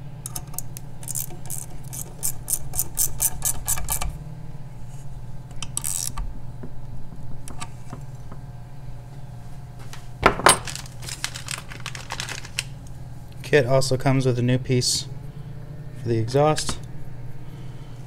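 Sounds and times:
ratchet wrench clicking: 0:00.2 - 0:04.1, 0:05.7 - 0:06.2
metal parts handled: 0:10.3 - 0:12.7.

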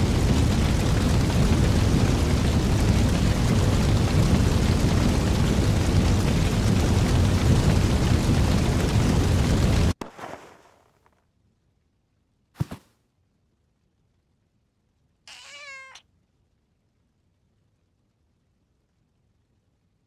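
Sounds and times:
large fire burning: 0:00.0 - 0:10.6, 0:16.1 - 0:20.0.

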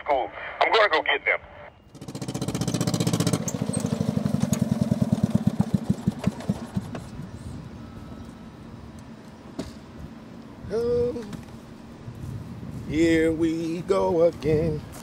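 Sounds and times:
engine sputtering and dying: 0:01.9 - 0:07.2.

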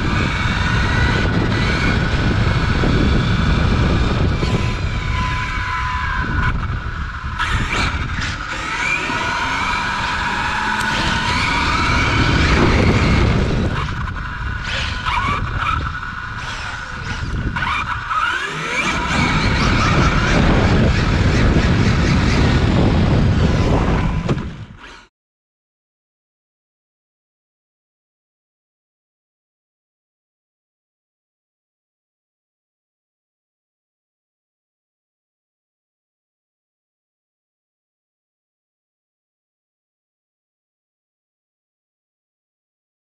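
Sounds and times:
tyre and road noise: 0:00.0 - 0:24.9
electric motor whining: 0:00.0 - 0:25.1.

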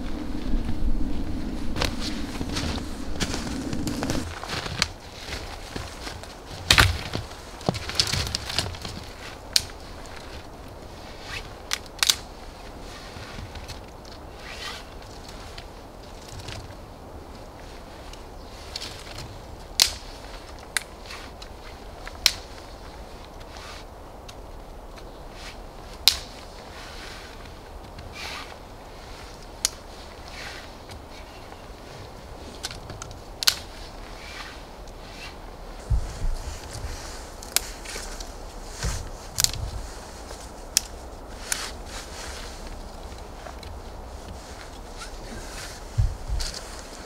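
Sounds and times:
body shuffling in snow: 0:00.0 - 0:11.6, 0:25.2 - 0:32.6, 0:33.7 - 0:47.0
twigs crackling: 0:00.0 - 0:47.0
sticks snapping: 0:01.7 - 0:10.4, 0:11.6 - 0:12.3, 0:18.1 - 0:22.7, 0:25.9 - 0:26.5, 0:32.5 - 0:41.8.

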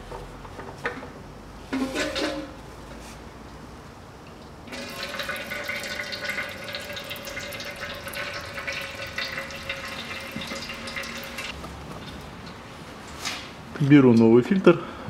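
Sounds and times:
oil trickling into container: 0:04.7 - 0:11.6.

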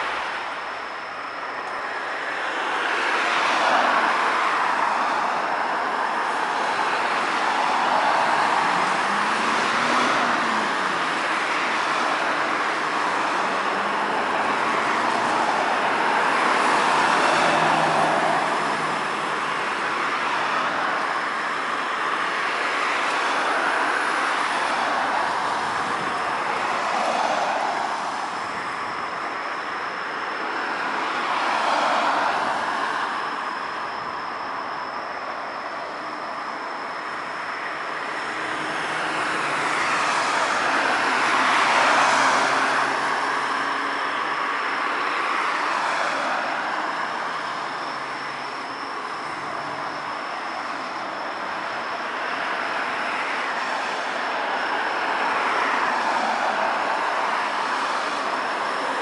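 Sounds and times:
tyres hissing on wet road: 0:06.4 - 0:25.8, 0:26.5 - 0:28.8, 0:30.8 - 0:33.2, 0:38.3 - 0:48.4, 0:50.6 - 0:59.0.

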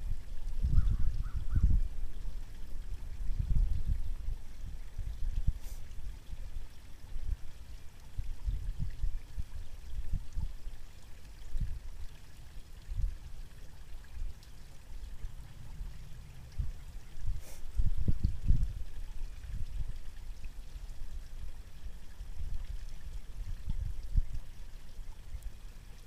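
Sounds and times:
wind buffeting microphone: 0:00.0 - 0:05.7, 0:08.1 - 0:10.5, 0:15.1 - 0:20.0, 0:22.3 - 0:24.5.

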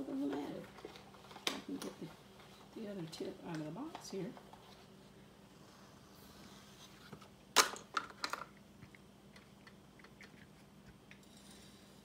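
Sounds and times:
clicks and crackles of handling: 0:00.2 - 0:04.8, 0:07.1 - 0:11.2.

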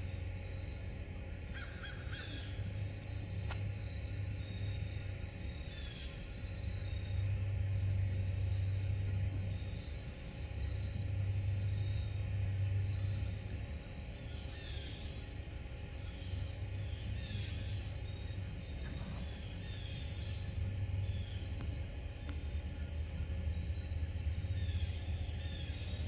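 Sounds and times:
low steady rumble: 0:00.0 - 0:26.0
faint high bird calls: 0:01.5 - 0:03.8.

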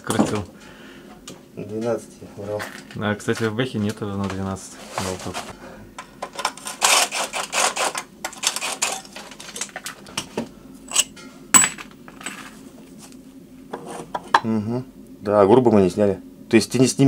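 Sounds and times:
metallic scraping and rattling: 0:06.2 - 0:09.8, 0:10.9 - 0:12.6.

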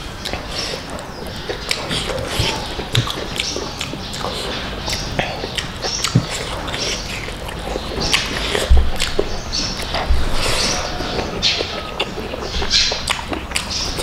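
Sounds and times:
wet chewing and lip-smacking: 0:00.0 - 0:14.0
low thump: 0:08.7 - 0:09.0.

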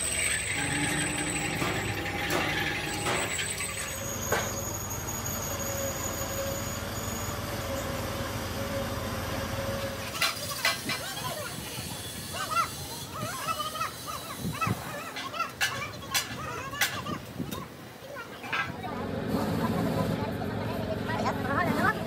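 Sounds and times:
truck engine running: 0:18.9 - 0:22.0.

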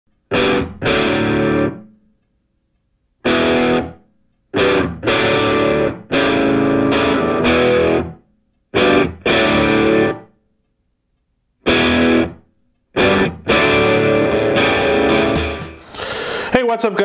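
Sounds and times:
distorted electric guitar chords: 0:00.2 - 0:02.0, 0:03.2 - 0:10.3, 0:11.6 - 0:15.9.

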